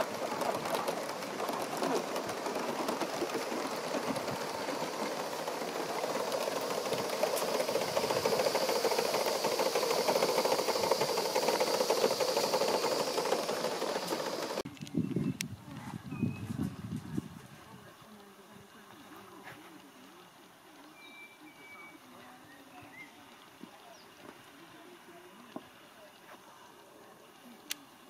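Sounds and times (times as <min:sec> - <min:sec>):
steam locomotive chuffing: 0:00.0 - 0:14.6.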